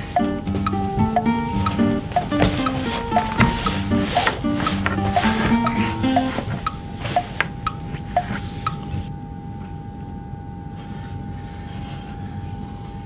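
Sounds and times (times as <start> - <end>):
faint steady hum: 0.0 - 13.0
light percussive music notes: 0.2 - 6.8.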